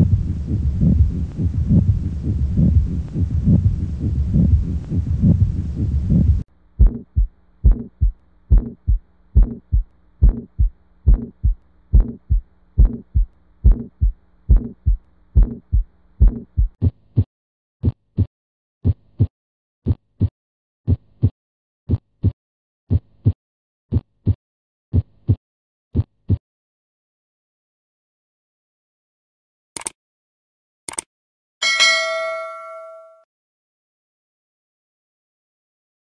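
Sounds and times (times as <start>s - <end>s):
faint heart murmur hum: 0.0s - 19.0s
heartbeat through a stethoscope: 0.0s - 20.3s, 20.9s - 26.4s.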